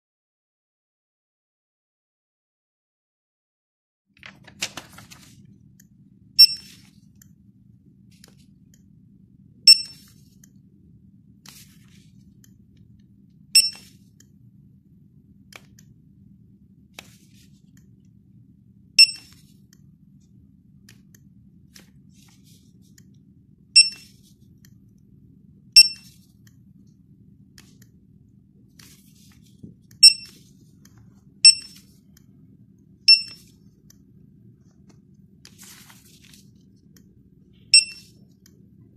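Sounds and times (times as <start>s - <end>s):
faint low hum: 4.2s - 38.9s
barcode scanner beeps: 6.4s - 6.8s, 9.7s - 10.1s, 13.6s - 13.9s, 19.0s - 19.4s, 23.8s - 24.2s, 25.8s - 26.2s, 30.0s - 30.4s, 31.4s - 32.0s, 33.0s - 33.6s, 37.6s - 38.4s.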